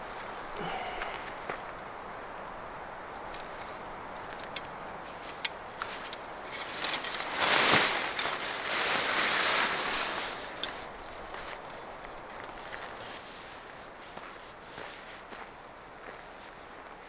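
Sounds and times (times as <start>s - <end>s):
tent fabric flapping: 5.0s - 13.9s.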